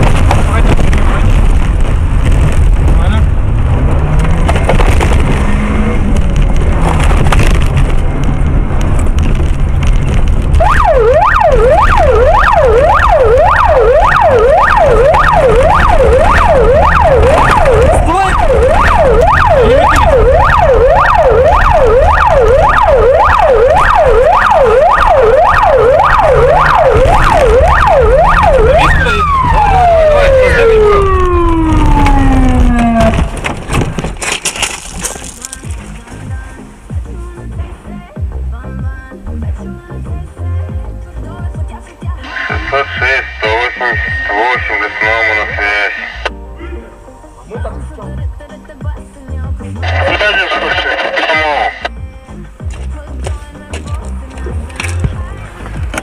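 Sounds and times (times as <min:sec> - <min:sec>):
car engine and road noise: 0:00.0 - 0:56.0
police siren yelping: 0:10.6 - 0:33.4, 0:42.2 - 0:46.3, 0:49.8 - 0:51.9.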